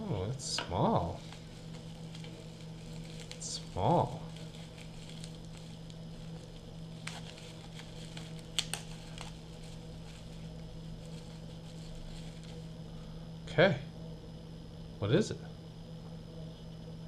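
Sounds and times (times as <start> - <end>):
steady low hum: 0.0 - 17.0
bubble wrap crinkling and crackling: 1.0 - 12.8.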